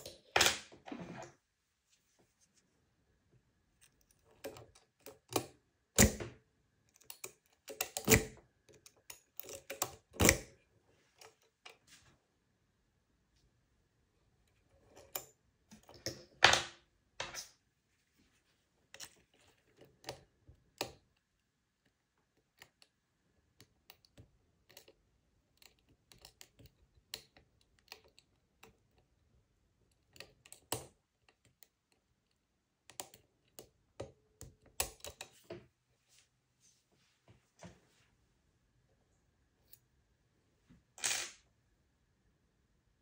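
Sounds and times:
lock pick clicking in lock: 6.9s - 10.5s.

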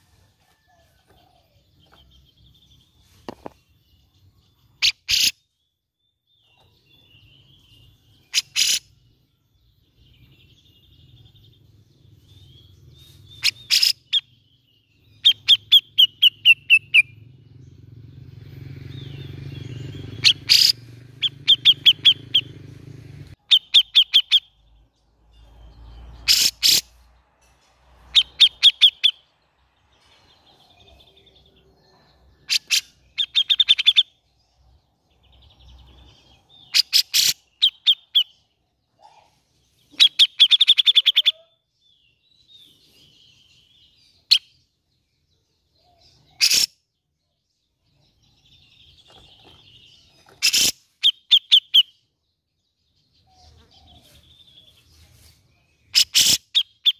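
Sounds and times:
bulbul chattering calls: 4.8s - 5.5s, 7.3s - 9.0s, 13.2s - 14.4s, 15.1s - 17.8s, 18.9s - 24.7s, 26.1s - 27.0s, 28.1s - 29.2s, 30.6s - 34.3s, 35.7s - 42.6s, 45.8s - 47.0s, 48.0s - 52.0s, 55.8s - 56.9s.

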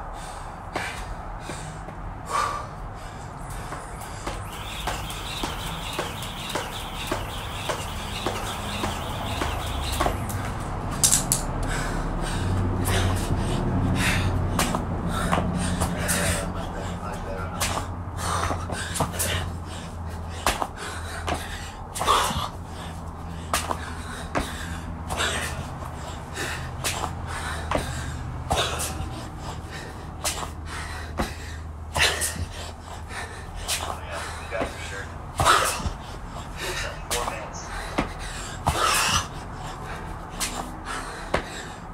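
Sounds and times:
person breathing hard: 0.0s - 10.2s, 11.5s - 41.9s
jump rope slapping concrete: 3.5s - 11.8s, 14.5s - 16.0s, 20.3s - 22.6s, 23.5s - 25.6s, 26.8s - 29.0s.

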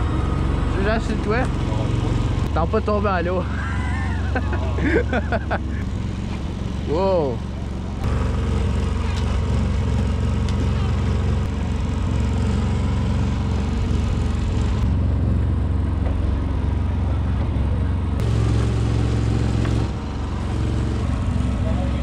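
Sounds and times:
outboard motor droning: 0.0s - 22.0s
wind: 0.0s - 22.0s.

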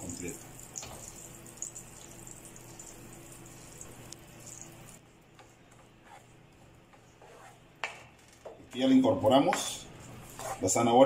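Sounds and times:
fat sizzling in a frying pan: 0.0s - 5.0s.

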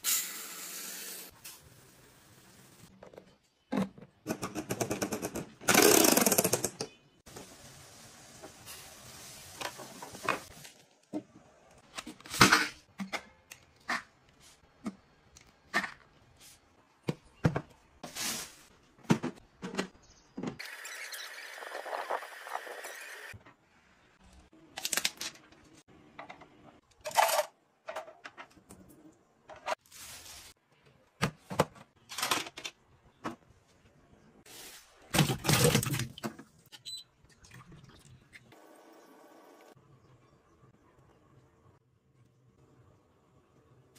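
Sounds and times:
plastic gadgets clicking and rattling: 3.0s - 6.9s, 31.6s - 32.8s.

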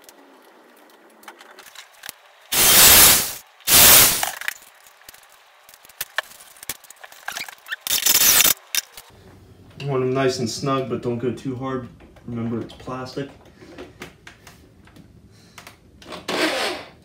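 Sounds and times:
electric drill bursts: 2.5s - 4.3s, 7.9s - 8.6s.

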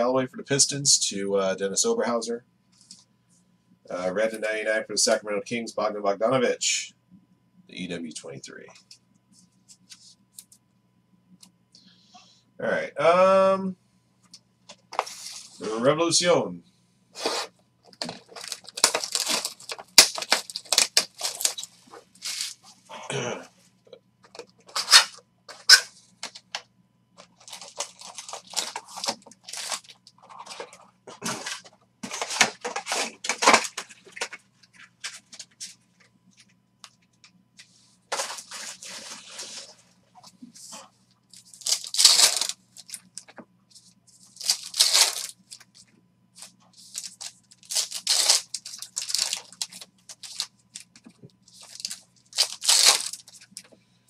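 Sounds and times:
foil wrappers crinkling and tearing: 17.2s - 22.6s, 24.3s - 26.5s, 27.2s - 35.7s, 41.3s - 53.7s.

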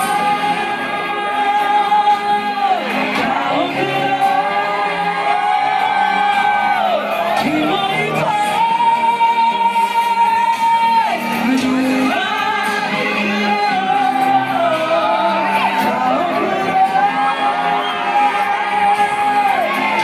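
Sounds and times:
backing track: 0.0s - 20.0s
man singing pop into microphone: 7.3s - 20.0s.

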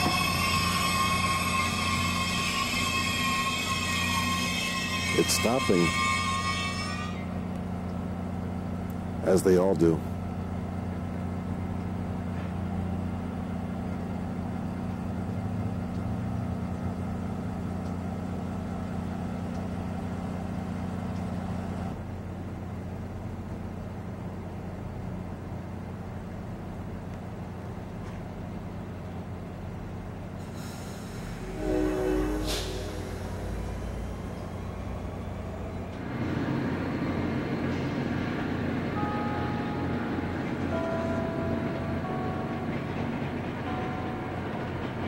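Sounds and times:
train horn blast: 0.0s - 7.4s, 30.6s - 34.9s
train diesel engine humming: 0.0s - 45.0s
air hiss: 30.4s - 34.3s.

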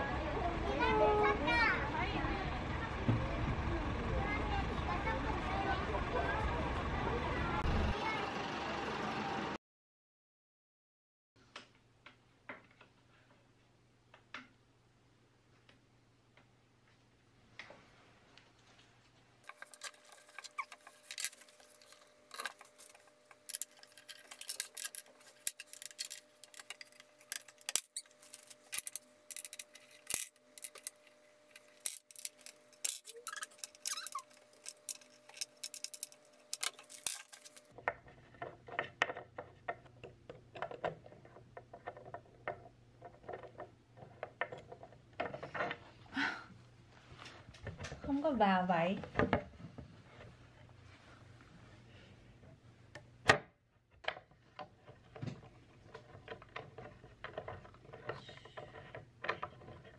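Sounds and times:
furniture parts clicking and knocking: 31.6s - 45.9s.

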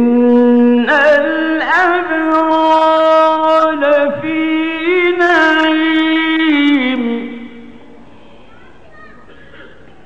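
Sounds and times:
man chanting melodically: 0.0s - 7.8s.

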